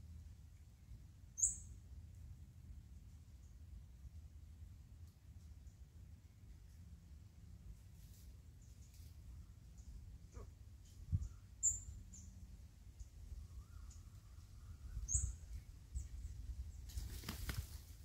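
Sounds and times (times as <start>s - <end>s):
rooster wing-flapping: 16.9s - 18.0s.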